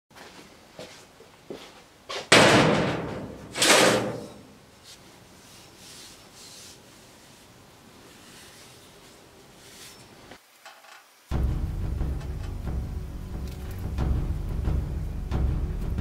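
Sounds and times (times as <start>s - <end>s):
steel rail clanking on metal: 2.3s - 4.5s.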